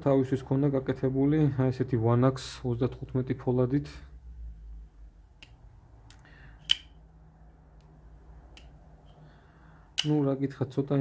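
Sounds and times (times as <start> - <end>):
folding knife clicks: 5.4 - 6.9, 10.0 - 10.2
sharp metallic click: 5.4 - 7.0, 10.0 - 10.2.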